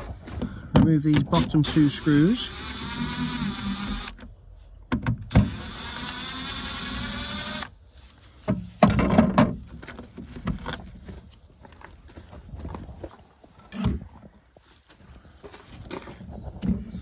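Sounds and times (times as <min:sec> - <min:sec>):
cordless drill whining: 0:01.4 - 0:04.2, 0:05.3 - 0:07.8
handling knocks and rattles: 0:08.4 - 0:17.0.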